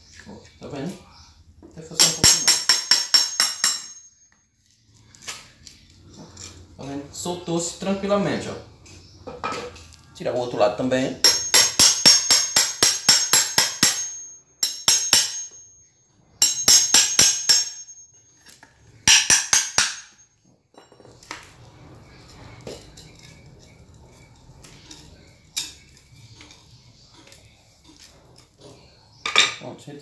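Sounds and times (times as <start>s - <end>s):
hammer striking steel chisel: 2.0s - 4.2s, 11.2s - 15.8s, 16.4s - 20.2s.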